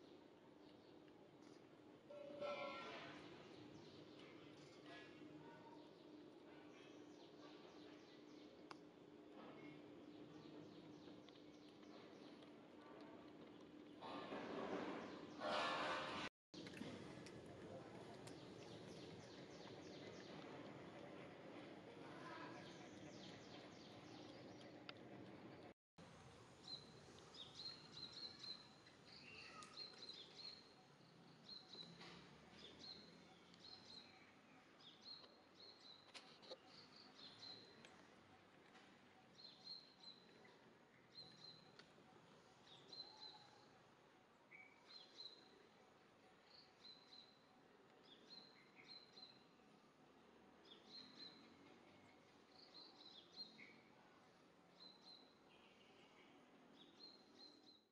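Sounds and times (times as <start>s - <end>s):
faint outdoor ambience: 0.0s - 57.9s.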